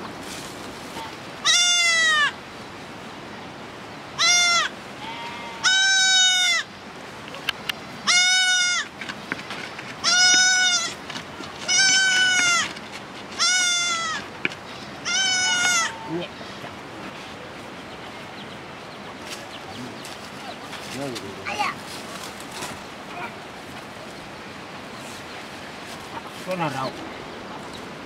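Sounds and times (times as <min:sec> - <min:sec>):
goat bleating: 0:01.4 - 0:02.4, 0:04.2 - 0:06.7, 0:08.1 - 0:08.9, 0:10.0 - 0:11.0, 0:11.6 - 0:12.7, 0:13.4 - 0:14.3, 0:15.0 - 0:16.2.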